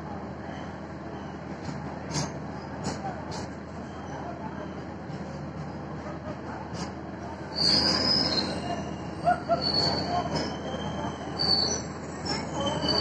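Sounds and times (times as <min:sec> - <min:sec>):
metallic railway squeals: 0:03.8 - 0:04.9, 0:07.3 - 0:13.0.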